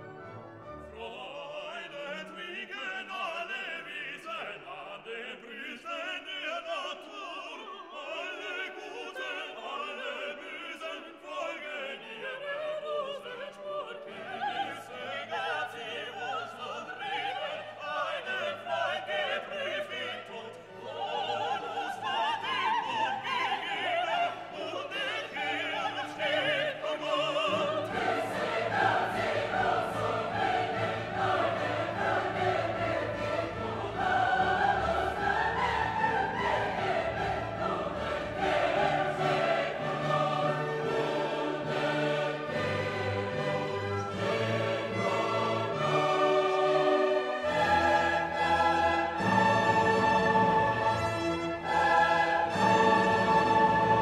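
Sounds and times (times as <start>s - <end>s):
orchestral music with operatic singing: 0.0s - 54.0s.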